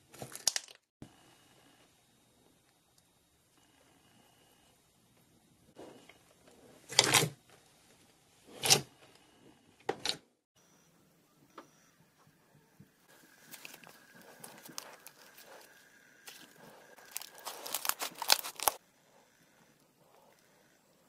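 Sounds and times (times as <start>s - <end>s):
slime squelching: 13.1s - 18.8s
sticky slime crackling: 16.3s - 18.8s.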